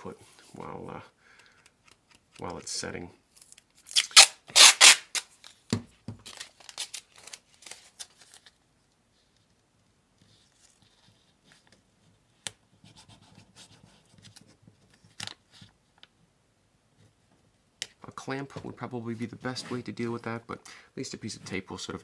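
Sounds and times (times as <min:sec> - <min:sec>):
tape crinkling and rubbing: 0:03.3 - 0:09.6, 0:10.2 - 0:11.8
masking tape ripping: 0:03.8 - 0:05.4.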